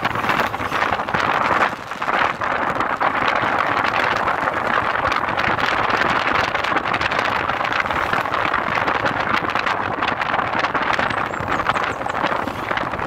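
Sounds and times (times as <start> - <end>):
motorcycle cruising: 0.0 - 13.0
road noise: 0.0 - 13.0
wind rushing: 0.0 - 13.0.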